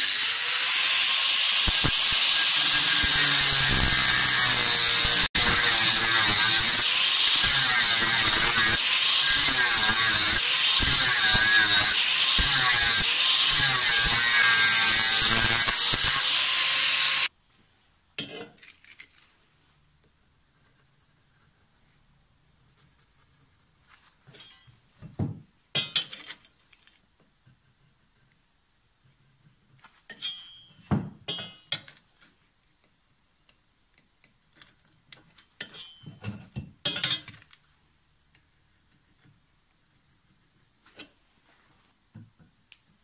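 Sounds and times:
angle grinder cutting steel: 0:00.0 - 0:17.3.

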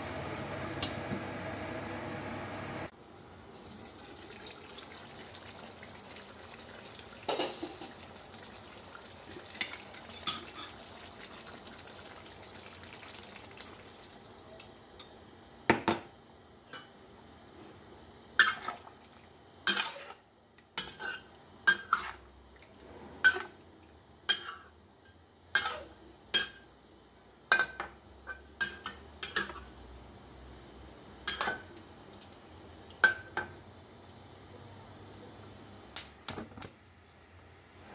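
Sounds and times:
metal spatula clanking on wok: 0:19.7 - 0:20.2, 0:20.8 - 0:22.2, 0:25.5 - 0:26.6, 0:27.5 - 0:29.7.

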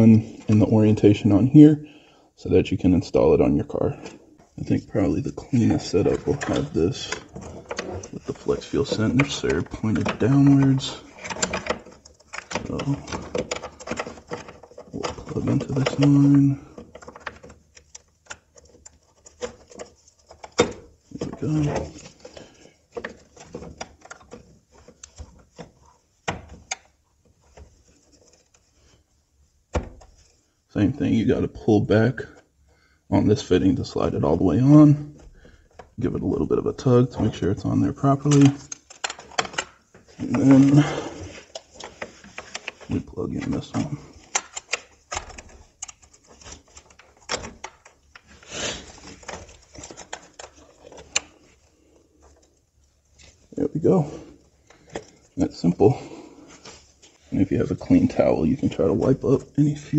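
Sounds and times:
small clicks and scrapes: 0:06.2 - 0:29.2, 0:38.2 - 0:43.0, 0:43.6 - 0:53.6.

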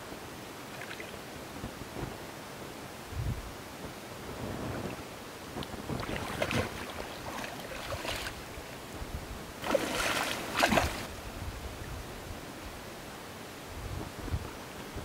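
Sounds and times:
fish splashing in water: 0:06.0 - 0:08.5, 0:09.6 - 0:11.1.

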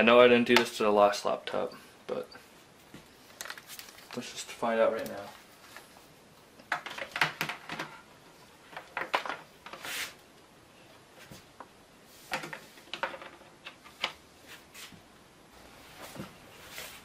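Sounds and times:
cable rustling: 0:02.8 - 0:10.2.

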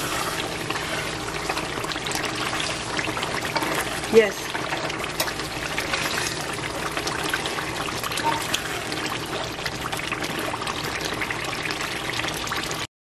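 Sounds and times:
sauce sizzling and bubbling in pan: 0:00.0 - 0:12.9.

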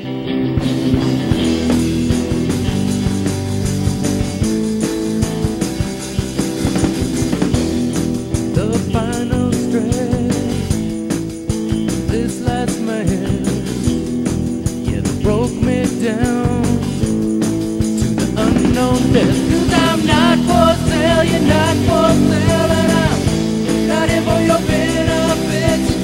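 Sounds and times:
rock music with guitar and drums: 0:00.0 - 0:26.0
person singing: 0:08.5 - 0:10.8, 0:12.1 - 0:13.8, 0:14.8 - 0:17.1, 0:18.2 - 0:26.0.

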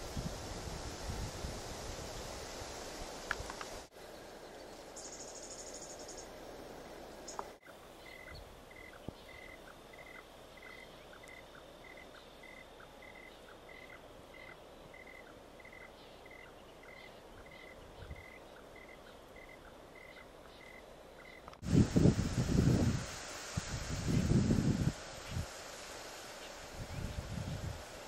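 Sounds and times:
cricket chirping: 0:04.7 - 0:06.4, 0:07.2 - 0:22.2.

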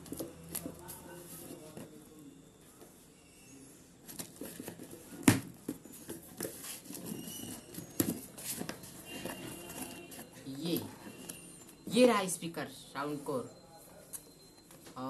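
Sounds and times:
cardboard packaging rustling: 0:04.0 - 0:11.8.

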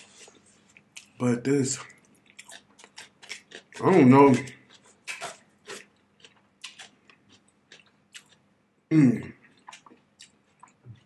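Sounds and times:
chewing salad: 0:00.0 - 0:08.5, 0:09.1 - 0:11.0
wet mouth clicks and smacks: 0:04.4 - 0:08.4.

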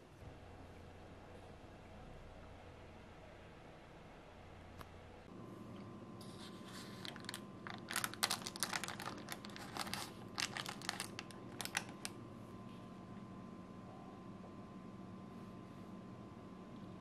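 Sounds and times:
faint steady hum: 0:00.0 - 0:17.0
baking paper crinkling: 0:06.2 - 0:12.2.

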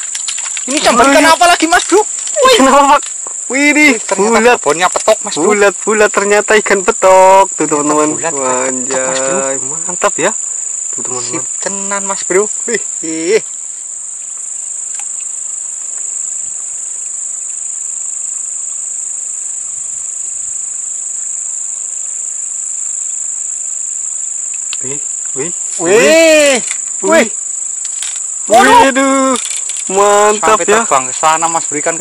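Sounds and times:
high-pitched insect chorus: 0:00.0 - 0:32.0
man exclaiming: 0:02.4 - 0:03.0, 0:25.8 - 0:27.3, 0:28.5 - 0:30.9.

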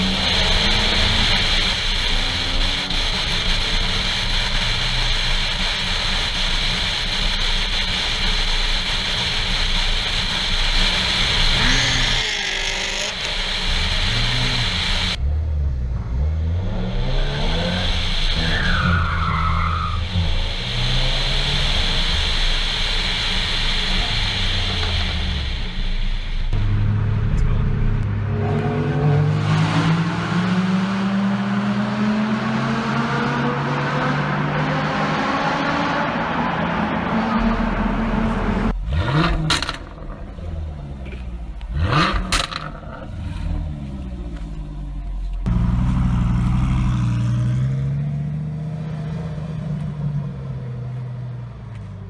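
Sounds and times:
wind and road noise: 0:00.0 - 0:52.0
car engine running: 0:37.4 - 0:52.0.

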